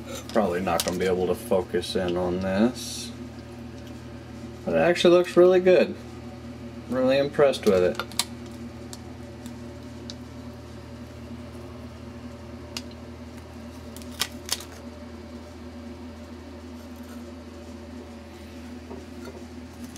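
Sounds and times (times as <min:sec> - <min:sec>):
low electrical hum: 0:00.0 - 0:19.9.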